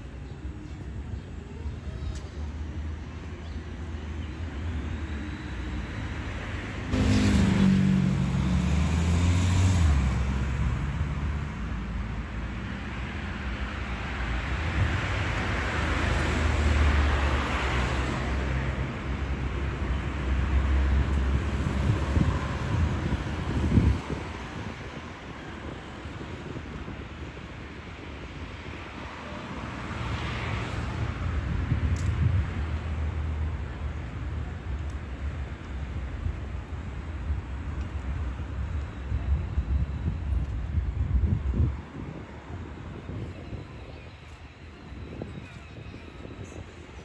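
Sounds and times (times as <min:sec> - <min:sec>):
low traffic rumble: 0:00.0 - 0:47.0
vehicle passing by: 0:06.5 - 0:11.6.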